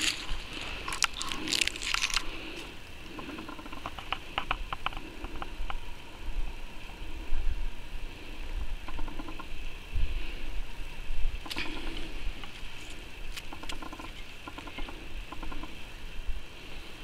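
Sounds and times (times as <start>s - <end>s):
close rustling: 0.0s - 2.8s
pine shoot crackling clicks: 0.0s - 5.8s, 11.4s - 12.7s, 13.3s - 15.7s.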